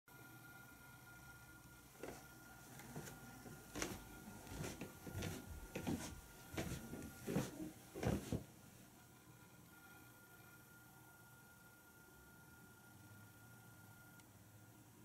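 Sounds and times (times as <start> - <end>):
footsteps on carpeted stairs: 2.8 - 8.5.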